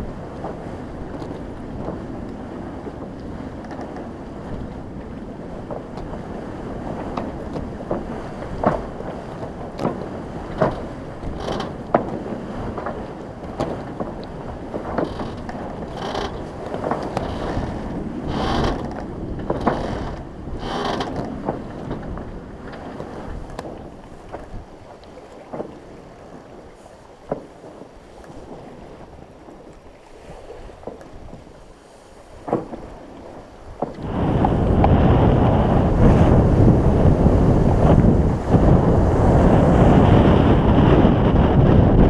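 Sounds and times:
water splashes: 0:00.0 - 0:42.0
wind: 0:00.0 - 0:42.0
rigging clicks and knocks: 0:09.8 - 0:12.2, 0:20.8 - 0:22.1
water wash: 0:32.4 - 0:42.0.

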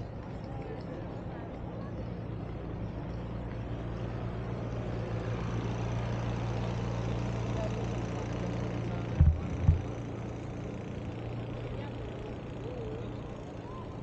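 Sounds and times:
outdoor city noise: 0:00.0 - 0:14.0
engine idling: 0:04.3 - 0:14.0
dull low thumps: 0:09.2 - 0:09.9.

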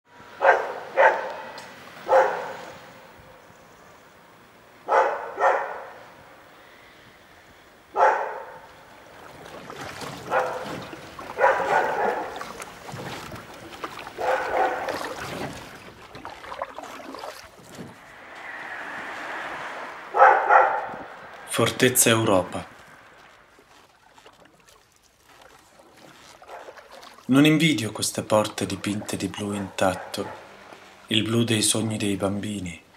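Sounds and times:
dog barking: 0:00.4 - 0:02.6, 0:04.8 - 0:06.0, 0:07.9 - 0:08.7, 0:10.2 - 0:10.8, 0:11.4 - 0:12.4, 0:14.2 - 0:15.0, 0:20.1 - 0:21.0, 0:29.8 - 0:30.5.

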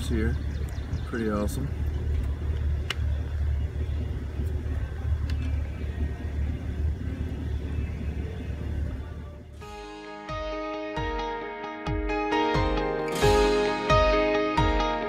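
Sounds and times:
off-road vehicle rumbling on dirt trail: 0:00.0 - 0:09.6
soft music: 0:01.4 - 0:15.0
faint clicks: 0:05.2 - 0:05.6.

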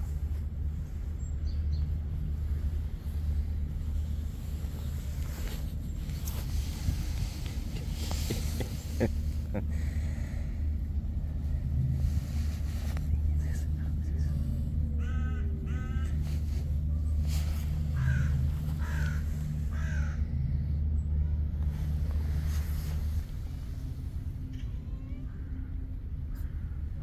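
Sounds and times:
low rumble: 0:00.0 - 0:27.0
crow cawing: 0:15.0 - 0:16.2, 0:18.0 - 0:20.2.

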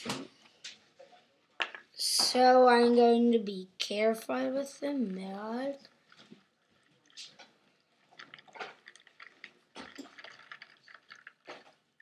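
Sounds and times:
milk pouring onto cereal: 0:06.0 - 0:12.0.

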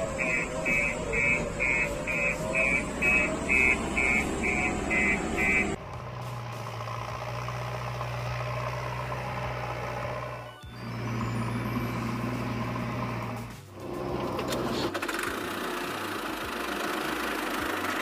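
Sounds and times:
reversing alarm beeping: 0:00.0 - 0:05.8
engine humming: 0:00.0 - 0:18.0.

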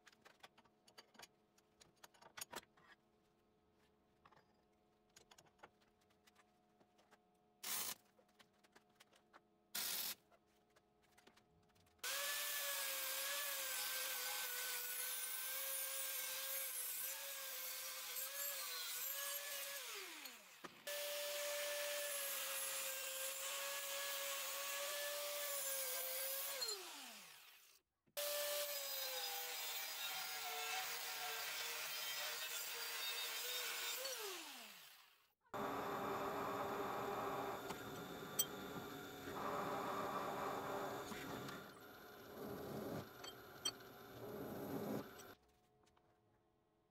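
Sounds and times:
angle grinder cutting steel: 0:12.1 - 0:35.0.

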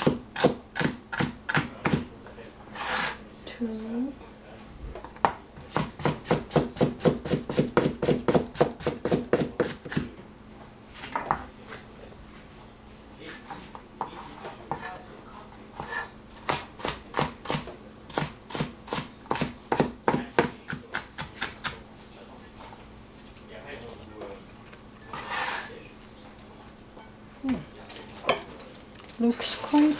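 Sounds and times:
cleaver chopping on cutting board: 0:00.0 - 0:02.1, 0:05.7 - 0:10.1, 0:15.8 - 0:21.8.

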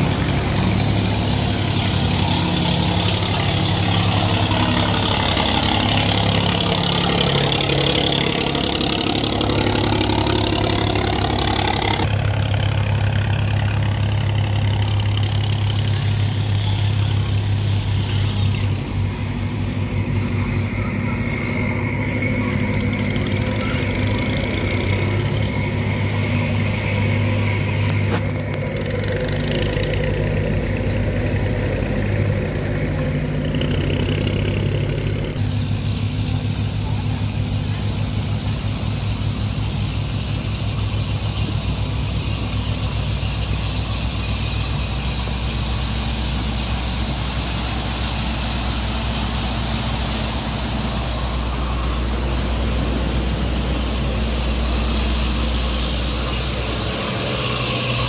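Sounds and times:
boat engines droning: 0:00.0 - 0:58.0
water churning in wake: 0:35.8 - 0:58.0.

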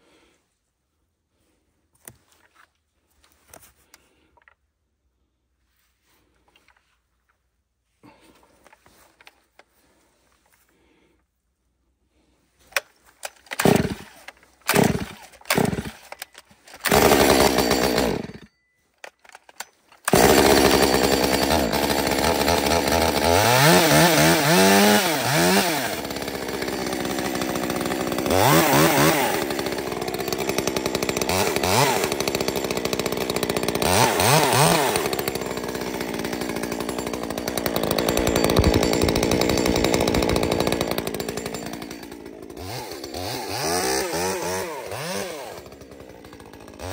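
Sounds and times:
chainsaw starter cord pulls: 0:12.6 - 0:46.9
chainsaw engine running and revving: 0:13.6 - 0:14.1, 0:14.7 - 0:16.0, 0:16.8 - 0:18.4, 0:20.1 - 0:46.9.

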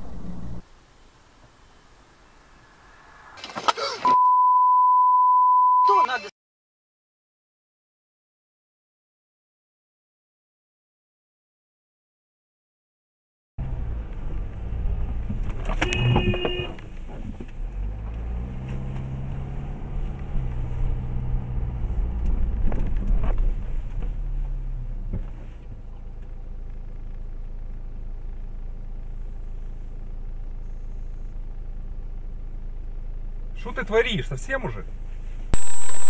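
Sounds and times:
car engine and road noise: 0:00.0 - 0:06.1, 0:13.6 - 0:36.0
short honk: 0:15.8 - 0:16.8.

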